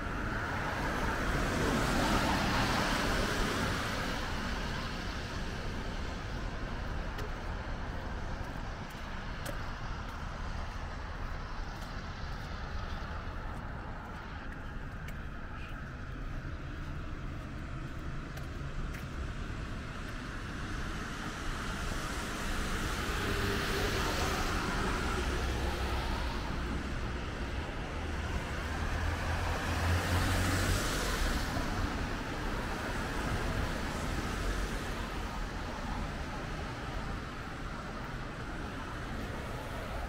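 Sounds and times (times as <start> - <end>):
low traffic rumble: 0.0 - 40.0
tyres hissing on wet road: 20.9 - 27.5, 28.2 - 40.0.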